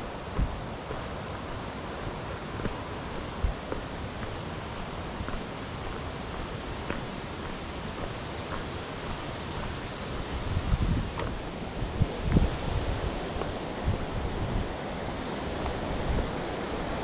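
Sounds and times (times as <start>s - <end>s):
small bird chirping: 1.5s - 1.8s, 3.5s - 4.1s.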